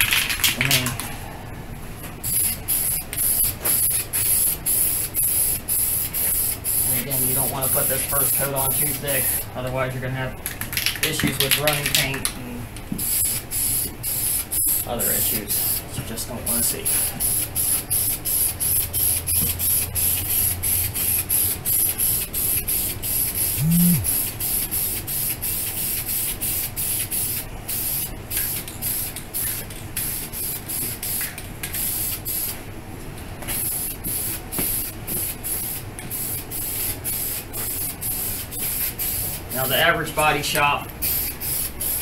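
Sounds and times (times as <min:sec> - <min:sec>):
aerosol can spraying in pulses: 0:17.2 - 0:32.6.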